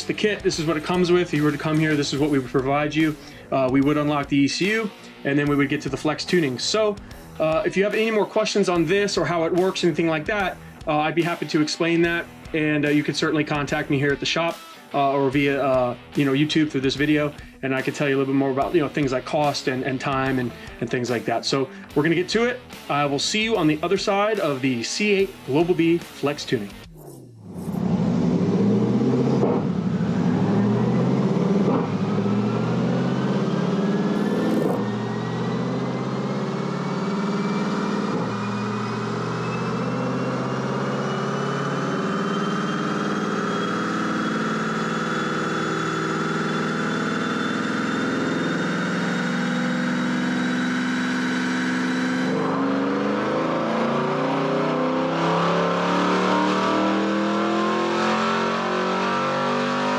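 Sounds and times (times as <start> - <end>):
car engine revving on dyno: 26.8 - 59.9
whine rising in pitch: 26.8 - 59.9.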